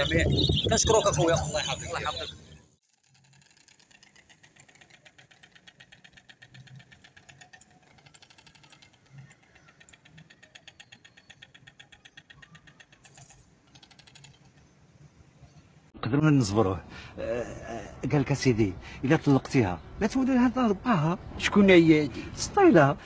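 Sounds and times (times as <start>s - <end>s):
stork bill clattering: 0.3s - 15.6s.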